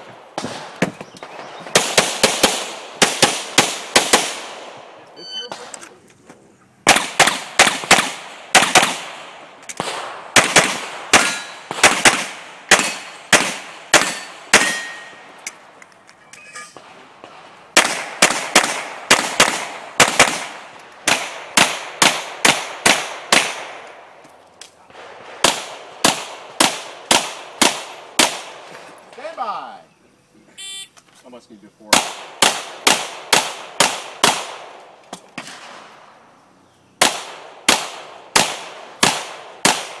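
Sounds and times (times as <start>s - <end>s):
rapid pistol fire: 1.6s - 4.8s, 6.8s - 14.8s, 17.2s - 23.8s, 24.9s - 28.6s, 31.9s - 34.8s, 37.0s - 40.0s.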